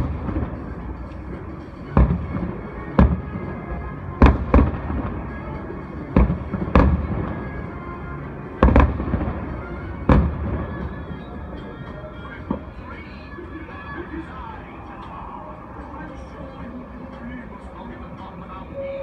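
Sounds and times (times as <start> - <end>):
fireworks bursting: 0.0 - 7.8, 8.6 - 13.3
faint music: 0.0 - 19.0.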